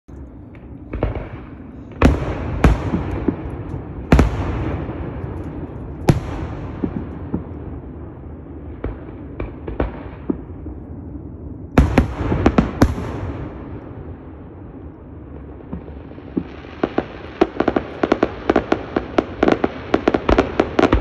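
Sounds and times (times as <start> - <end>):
rumbling echo: 0.1 - 16.4.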